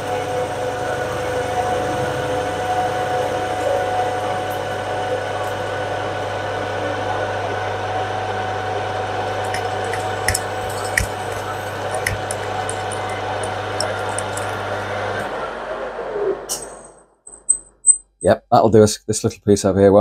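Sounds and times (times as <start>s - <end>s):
metal lathe motor hum: 8.8s - 15.7s
sharp clicks: 9.5s - 14.6s.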